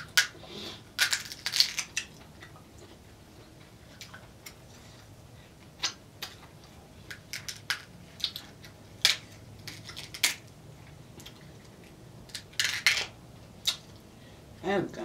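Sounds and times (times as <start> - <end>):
crab shell cracking: 1.0 - 2.3, 7.1 - 10.5, 12.3 - 13.9.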